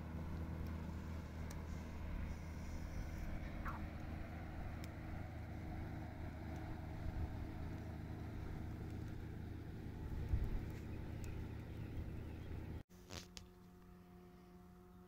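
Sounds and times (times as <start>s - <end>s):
distant engine droning: 0.0s - 12.8s, 13.4s - 15.0s.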